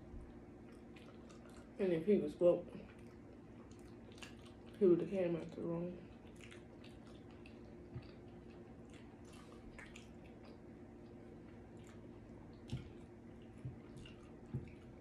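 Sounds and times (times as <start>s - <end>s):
steady low hum: 0.0s - 15.0s
wet sticky squishes: 2.9s - 4.8s, 6.1s - 15.0s.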